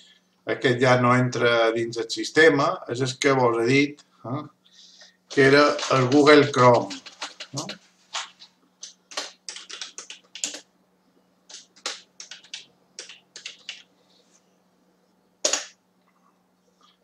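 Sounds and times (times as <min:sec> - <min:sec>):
typing on computer keyboard: 0:05.8 - 0:07.8, 0:08.8 - 0:10.7, 0:11.5 - 0:13.9, 0:15.4 - 0:15.7.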